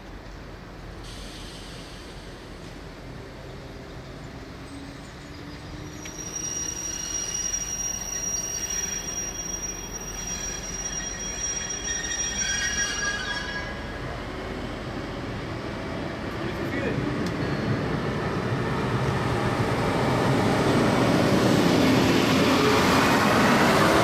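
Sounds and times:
diesel train rumble: 0:00.0 - 0:24.0
high-pitched metallic squeal: 0:05.4 - 0:14.1.

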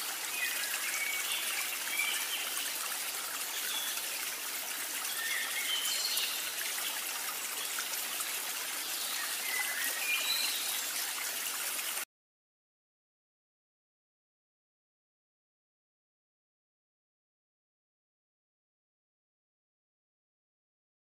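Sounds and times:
trickling water: 0:00.0 - 0:12.1.

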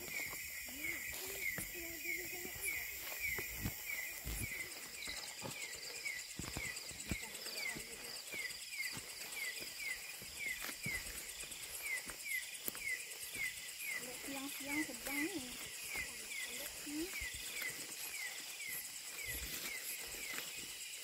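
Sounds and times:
footsteps through tall grass: 0:00.0 - 0:21.0
insects trilling: 0:00.0 - 0:21.0.

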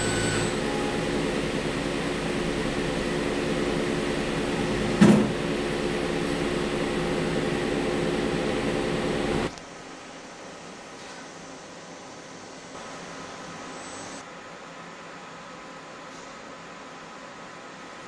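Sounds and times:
lab machinery whir and hum: 0:00.0 - 0:18.0
machine clunk: 0:04.6 - 0:05.4.

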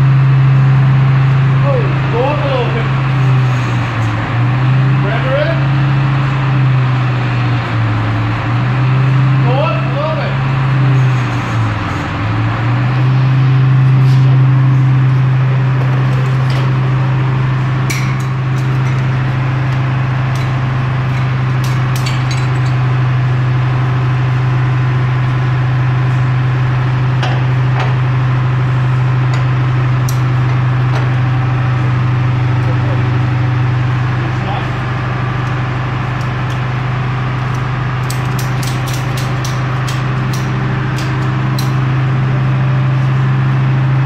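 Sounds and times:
engine idling: 0:00.0 - 0:44.0
metal clanks and knocks: 0:17.8 - 0:22.9, 0:27.2 - 0:28.0, 0:38.0 - 0:41.8.

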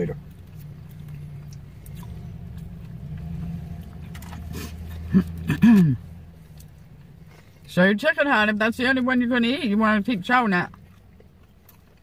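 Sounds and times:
vehicle engine rumble: 0:00.0 - 0:12.0.

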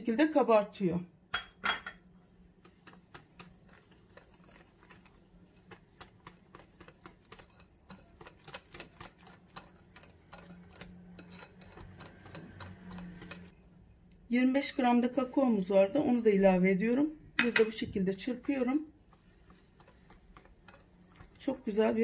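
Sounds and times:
soft wet stirring: 0:02.0 - 0:22.0
whisk clicking against glass bowl: 0:02.6 - 0:13.5, 0:17.4 - 0:21.4.

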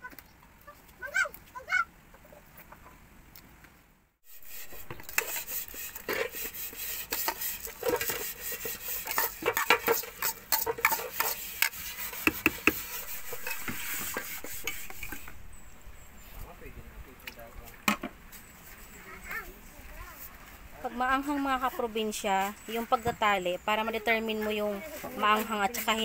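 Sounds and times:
metal spoon scraping plastic bowl: 0:04.3 - 0:16.1
spoon stirring and clinking: 0:07.1 - 0:12.2, 0:12.8 - 0:15.4.

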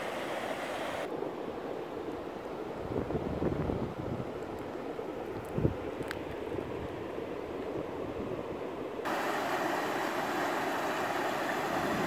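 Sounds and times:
wind rumble on microphone: 0:02.7 - 0:08.6, 0:11.6 - 0:12.0.

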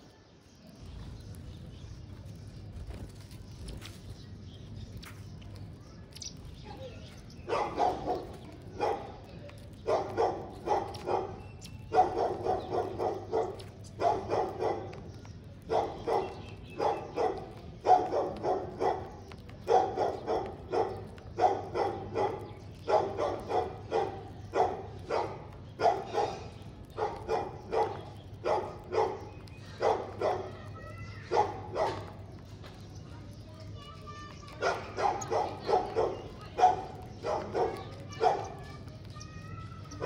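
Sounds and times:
dog barking: 0:07.4 - 0:32.2, 0:34.6 - 0:38.8.

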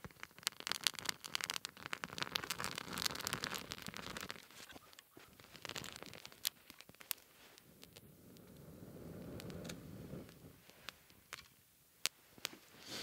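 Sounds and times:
twigs crackling in fire: 0:00.0 - 0:13.0.

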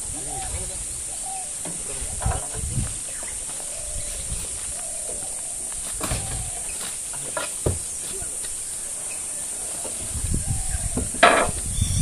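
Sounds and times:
insects buzzing: 0:00.0 - 0:12.0
knocks and rustles on metal tailgate: 0:05.9 - 0:08.1.

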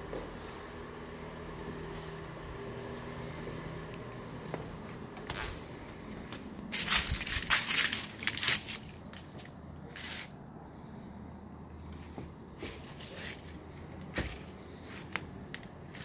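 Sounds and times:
footsteps crunching dry leaves: 0:05.4 - 0:10.3.

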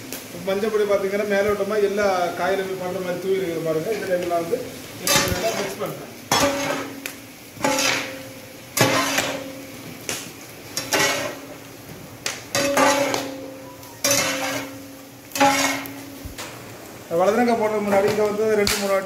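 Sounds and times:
metal ladle scraping pot: 0:05.1 - 0:07.0, 0:07.6 - 0:08.2, 0:08.8 - 0:09.5, 0:10.8 - 0:11.5, 0:12.5 - 0:16.2
pot ringing hum: 0:12.5 - 0:16.2.

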